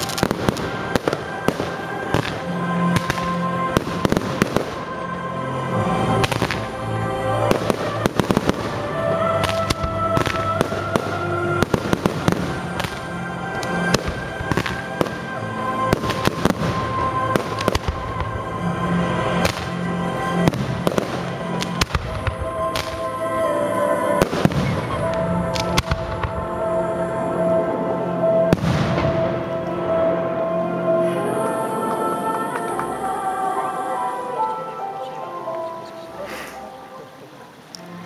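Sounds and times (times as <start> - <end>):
fireworks bursting bangs: 0.0 - 5.1, 6.0 - 23.2, 24.1 - 26.7, 28.4 - 29.5
music with sustained notes: 0.0 - 38.0.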